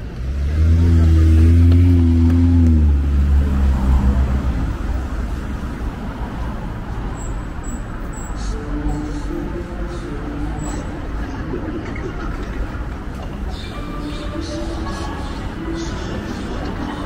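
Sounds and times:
vehicle engine passing: 0:00.0 - 0:07.2
traffic noise: 0:00.0 - 0:17.0.

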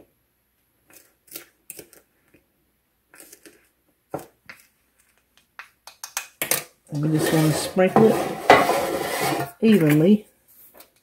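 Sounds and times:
spoon scraping in cup: 0:07.0 - 0:09.7.

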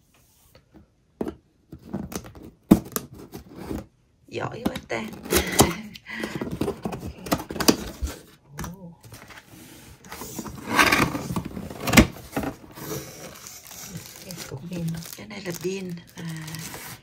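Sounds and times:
cardboard packaging being opened: 0:09.0 - 0:17.0.

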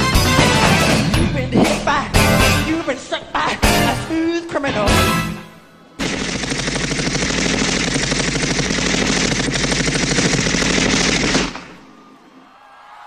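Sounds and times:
machine-gun sound effect: 0:06.0 - 0:11.9.

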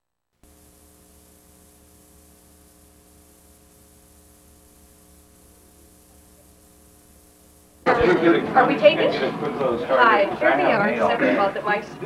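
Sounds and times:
tape hiss: 0:00.0 - 0:12.0
low electrical hum: 0:00.1 - 0:12.0.

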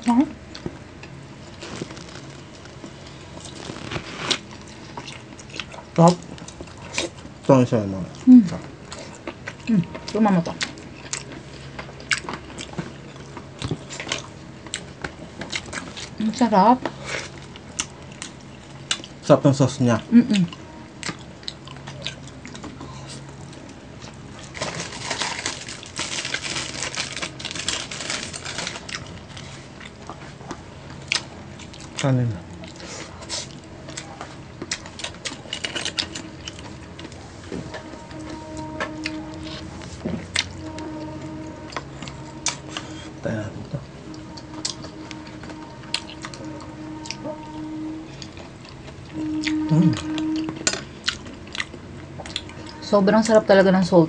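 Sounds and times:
chewing: 0:00.5 - 0:16.2, 0:16.8 - 0:19.3, 0:20.4 - 0:53.4
crunching crispy chicken: 0:01.4 - 0:07.0, 0:24.0 - 0:29.5.

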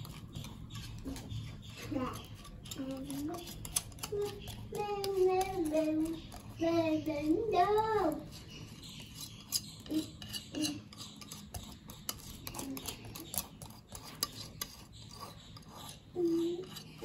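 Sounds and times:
utensil scraping a bowl: 0:00.0 - 0:17.0.

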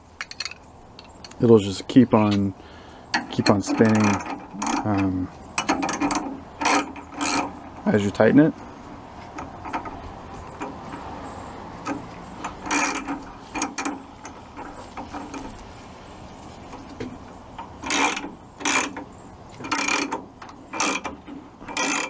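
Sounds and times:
wrench turning a nut: 0:03.2 - 0:07.9, 0:11.8 - 0:15.6, 0:17.6 - 0:22.0.

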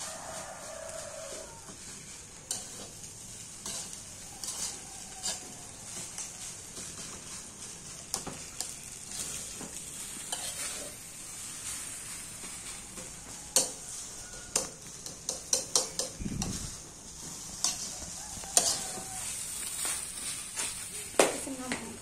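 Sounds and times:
rice sizzling in a pan: 0:00.0 - 0:22.0
metal utensil scraping a pan: 0:00.1 - 0:21.0.

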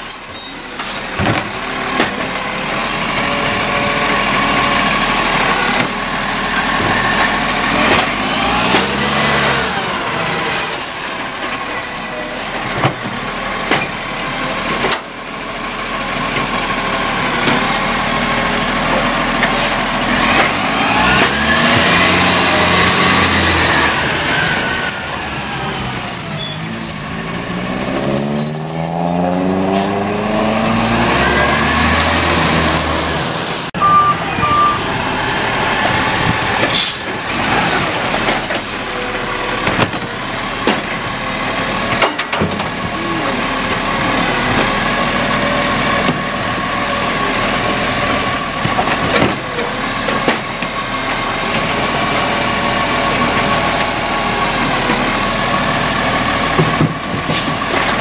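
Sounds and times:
diesel engine revving: 0:00.0 - 0:58.0
air brakes hissing: 0:19.5 - 0:19.9, 0:36.7 - 0:37.1.

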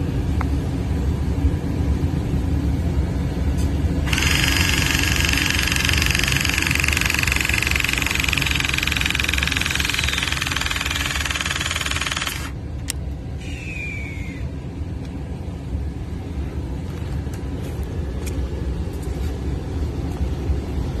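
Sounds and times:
low steady rumble: 0:00.0 - 0:21.0
hydraulic crimping tool pump running: 0:04.1 - 0:12.6
sharp click: 0:04.1 - 0:13.0
short falling whine: 0:13.4 - 0:14.6.

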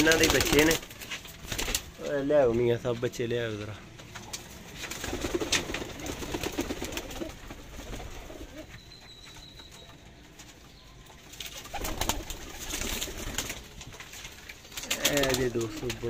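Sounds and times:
rustling: 0:00.0 - 0:16.0
pigeons cooing: 0:04.3 - 0:08.8.

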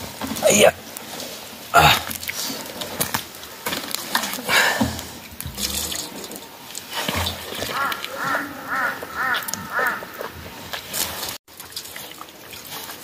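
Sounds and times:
water splashing: 0:00.0 - 0:13.0
short pitched throat sounds: 0:01.8 - 0:02.1
man rinsing his mouth: 0:05.5 - 0:06.3.

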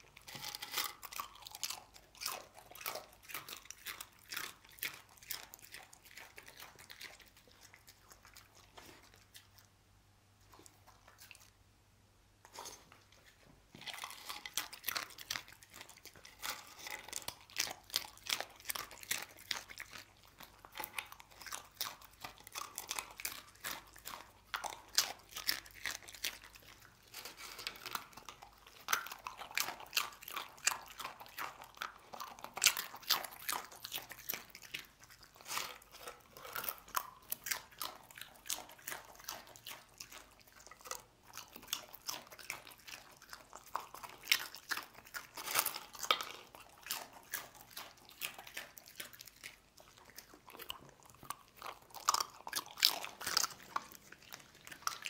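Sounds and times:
dog crunching chips: 0:00.0 - 0:09.7, 0:12.5 - 0:55.0.

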